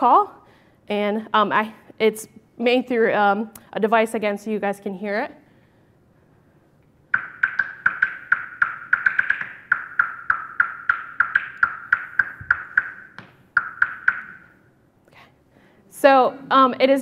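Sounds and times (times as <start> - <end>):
bat echolocation clicks: 7.1 - 14.5.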